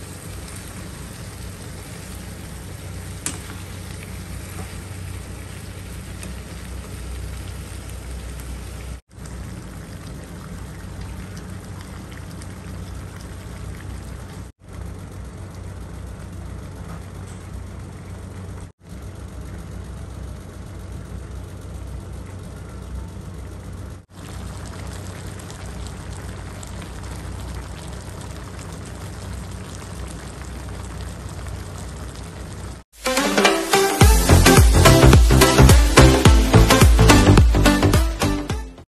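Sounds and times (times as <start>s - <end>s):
food sizzling in a wok: 0.0s - 12.6s, 24.1s - 37.9s.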